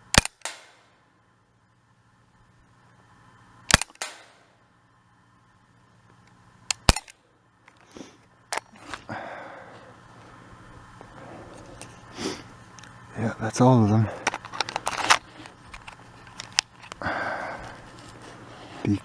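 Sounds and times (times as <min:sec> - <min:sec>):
air pistol shots: 0:00.0 - 0:00.9, 0:03.7 - 0:04.5
pistol handling noise: 0:00.0 - 0:00.9, 0:03.7 - 0:04.5, 0:06.1 - 0:09.1, 0:14.1 - 0:17.0.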